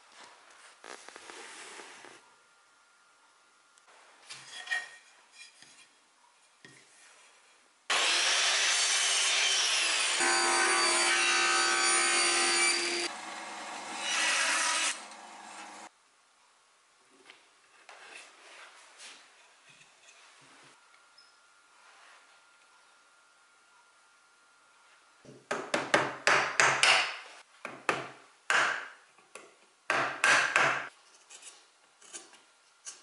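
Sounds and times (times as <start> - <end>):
table saw cutting wood: 7.9 - 15.9
chisel paring wood: 25.5 - 29.0, 29.9 - 30.9.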